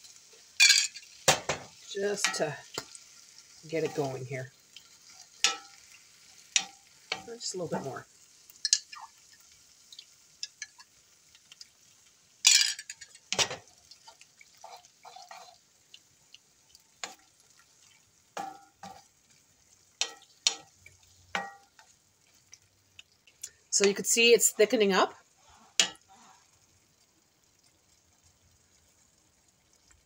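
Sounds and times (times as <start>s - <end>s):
faint sizzle from pan: 0.0s - 30.0s
wooden spatula scraping skillet: 3.7s - 5.8s, 13.3s - 15.6s, 23.4s - 26.6s.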